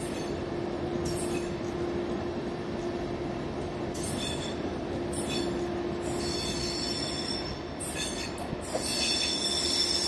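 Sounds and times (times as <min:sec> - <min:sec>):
train coaches rumbling: 0:00.0 - 0:10.0
train wheels squealing: 0:04.0 - 0:10.0.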